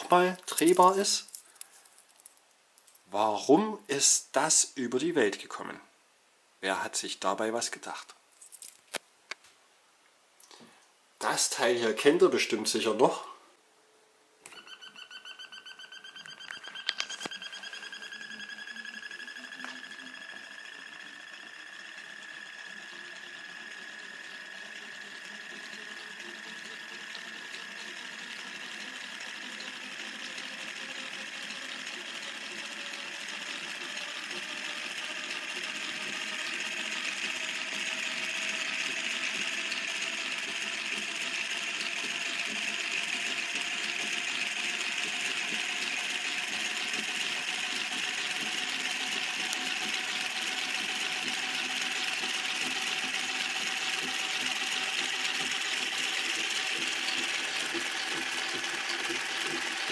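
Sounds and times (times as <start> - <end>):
small electric motor whirring: 14.5 - 59.9.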